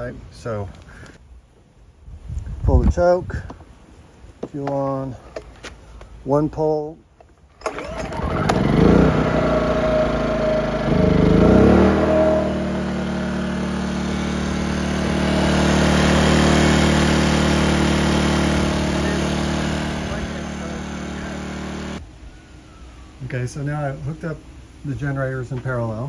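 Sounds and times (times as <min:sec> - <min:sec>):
generator engine running: 0:07.6 - 0:22.0.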